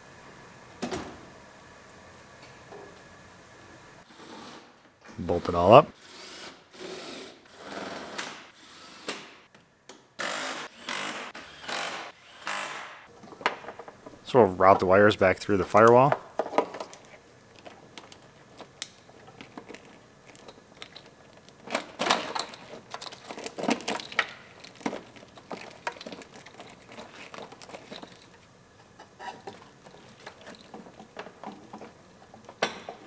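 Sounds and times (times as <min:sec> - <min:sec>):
plastic loom rustling and scraping: 0:21.7 - 0:28.2.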